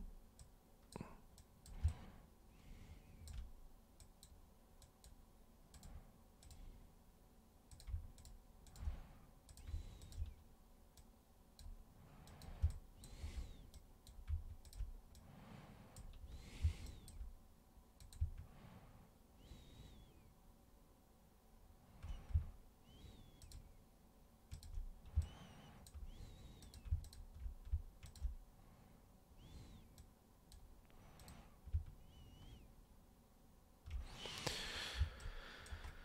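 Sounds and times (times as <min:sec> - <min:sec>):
computer mouse clicking: 0:00.3 - 0:02.2, 0:03.1 - 0:06.8, 0:07.7 - 0:17.4, 0:18.0 - 0:18.6, 0:21.9 - 0:23.8, 0:24.5 - 0:28.4, 0:29.4 - 0:32.7, 0:33.8 - 0:36.0.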